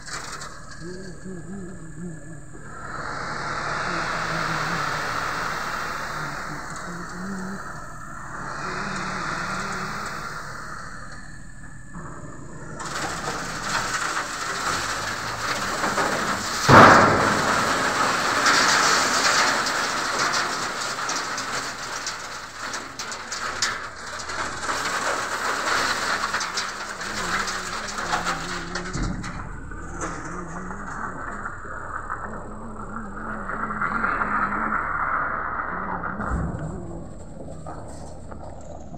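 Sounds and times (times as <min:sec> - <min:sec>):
heavy rain: 0:02.4 - 0:11.2, 0:12.4 - 0:29.4
loud crash: 0:02.7 - 0:38.9.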